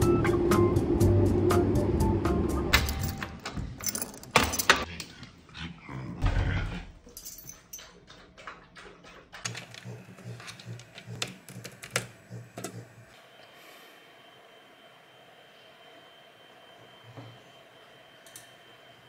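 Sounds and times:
keys jangling: 2.7 - 4.9, 7.1 - 7.9.

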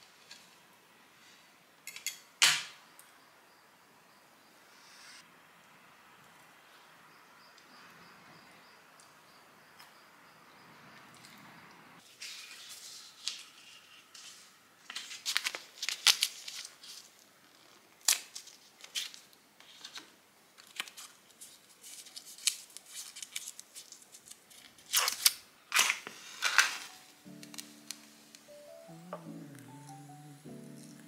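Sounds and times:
paper rustling and tearing: 12.0 - 28.0.

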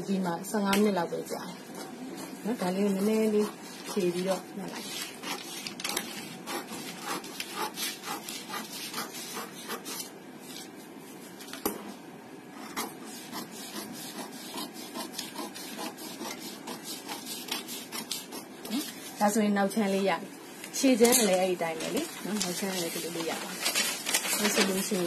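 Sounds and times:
paper rustling: 4.8 - 9.0, 20.6 - 25.0
scissors snipping paper: 4.8 - 10.1.

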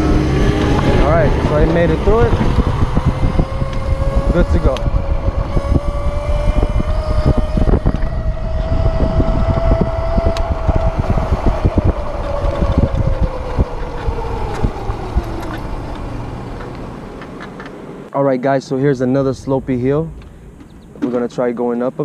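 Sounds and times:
electric scooter motor whine: 0.0 - 18.0
wind buffeting microphone: 0.0 - 18.1
road rumble: 0.0 - 22.0.

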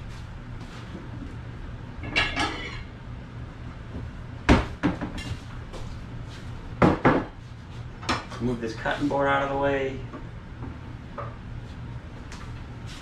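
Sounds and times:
stacked dishes clattering: 2.0 - 2.9.

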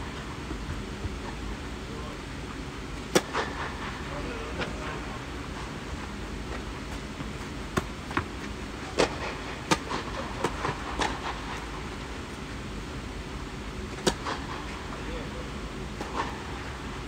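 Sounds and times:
steady low hum: 0.0 - 17.0
racket striking ball: 3.1 - 3.6, 8.9 - 11.4, 14.0 - 14.6.

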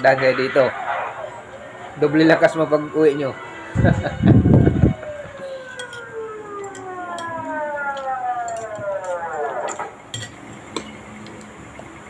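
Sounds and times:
siren winding down: 0.0 - 10.1
cutlery clinking on plates: 5.7 - 6.1, 8.5 - 10.9.

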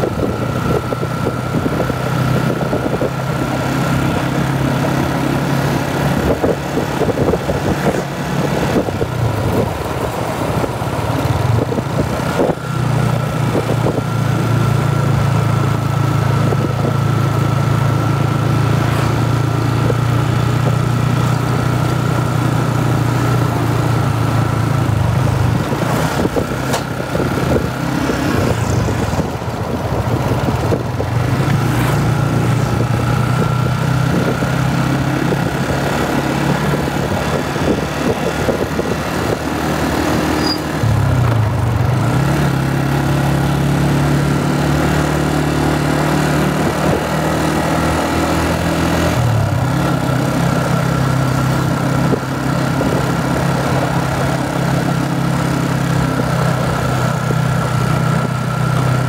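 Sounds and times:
motorcycle engine running: 0.0 - 59.0
road and wind noise: 0.0 - 59.0.

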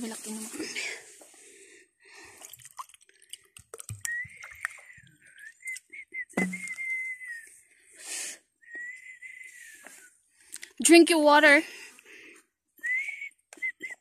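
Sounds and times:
woman whistling a tune: 4.0 - 4.6, 5.4 - 7.6, 8.6 - 10.1, 12.8 - 14.0
short thump: 6.4 - 6.8.

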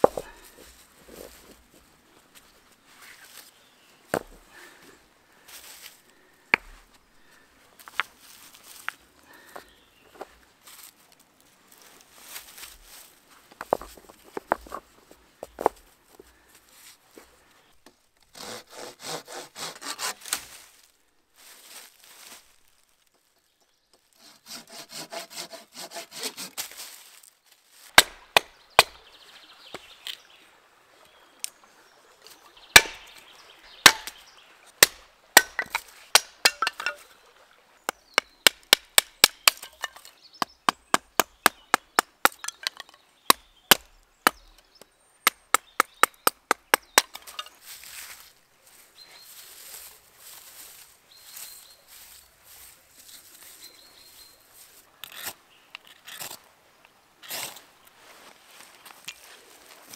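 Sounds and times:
wood knocking and cracking: 0.0 - 0.4, 4.1 - 4.5, 13.5 - 15.8, 27.9 - 29.0, 32.7 - 33.2, 33.8 - 34.2, 34.8 - 37.0, 37.9 - 44.6, 45.3 - 47.6
saw rasping strokes: 18.3 - 20.4, 24.2 - 26.8.

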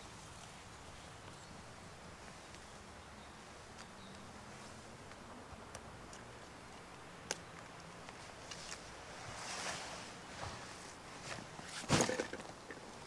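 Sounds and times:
straps and fabric rustling: 8.0 - 13.0
backpack thudding on grass: 11.6 - 12.6.

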